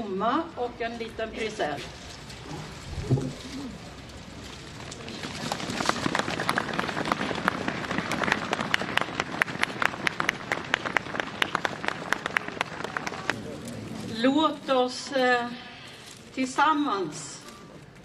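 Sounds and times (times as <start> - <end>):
crowd applauding: 5.1 - 13.5.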